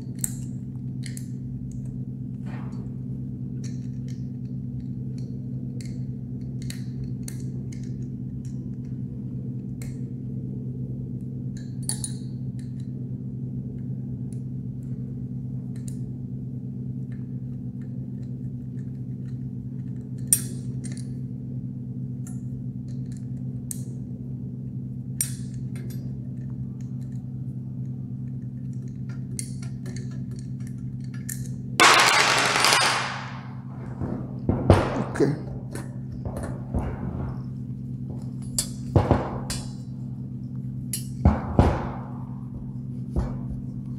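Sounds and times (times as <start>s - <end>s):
steady low hum: 0.0s - 43.9s
sharp knocks: 31.8s - 37.5s.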